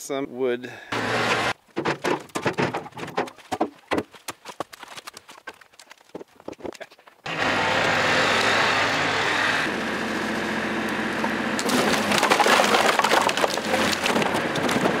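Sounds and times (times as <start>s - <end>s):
firewood clattering onto woodpile: 1.7s - 4.2s, 11.6s - 15.0s
tractor engine running: 7.2s - 15.0s.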